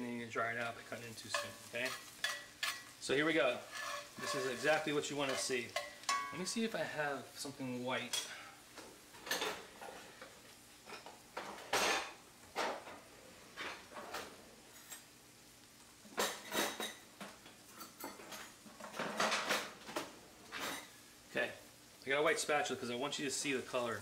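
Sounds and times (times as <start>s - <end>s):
kitchen utensils clattering: 1.3s - 2.9s, 3.7s - 6.6s, 9.2s - 9.9s, 16.2s - 21.0s.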